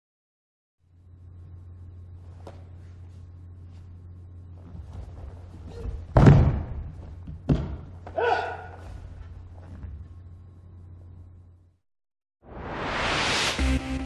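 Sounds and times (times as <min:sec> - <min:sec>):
low hum: 0:00.8 - 0:08.0, 0:08.8 - 0:11.8
body thudding onto mat: 0:04.6 - 0:08.2
person shouting: 0:08.2 - 0:08.8.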